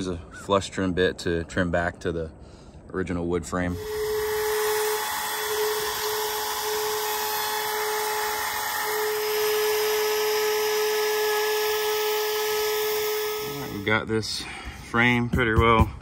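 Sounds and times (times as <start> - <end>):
trim router whining: 3.7 - 14.0.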